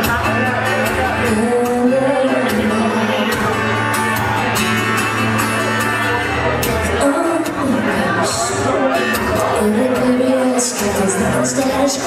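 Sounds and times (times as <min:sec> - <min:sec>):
strummed acoustic guitar: 0:00.0 - 0:12.0
woman singing: 0:01.2 - 0:03.6, 0:06.9 - 0:12.0.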